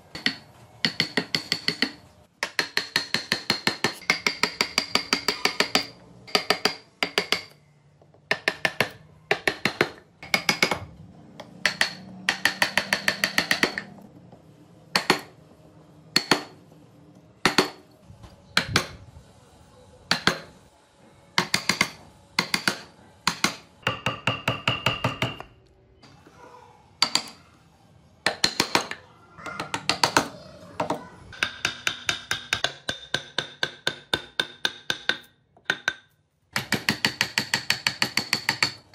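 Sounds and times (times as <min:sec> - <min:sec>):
mallet striking chisel into wood: 0:00.1 - 0:07.6, 0:08.3 - 0:13.9, 0:14.9 - 0:15.4, 0:16.1 - 0:16.6, 0:17.4 - 0:17.8, 0:20.1 - 0:20.5, 0:21.4 - 0:25.5, 0:28.2 - 0:29.0, 0:31.3 - 0:38.9.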